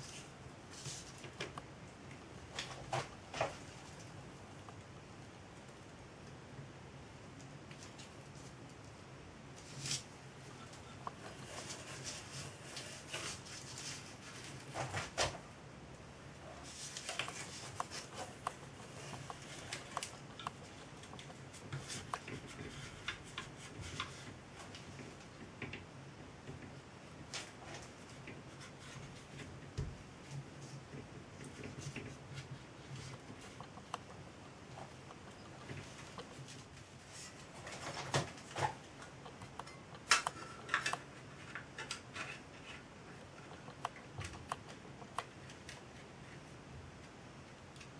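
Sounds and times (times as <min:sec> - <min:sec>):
faint steady low hum: 0:00.0 - 0:47.9
small clicks taps and rustles: 0:16.9 - 0:36.9.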